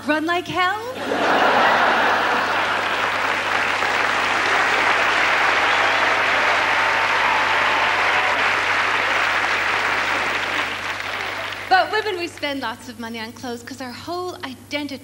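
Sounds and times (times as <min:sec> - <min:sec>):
audience applauding: 0:01.0 - 0:12.6.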